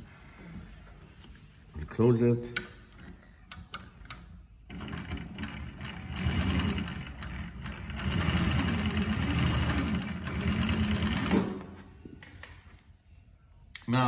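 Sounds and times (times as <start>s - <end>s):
industrial sewing machine stitching: 4.7s - 11.6s.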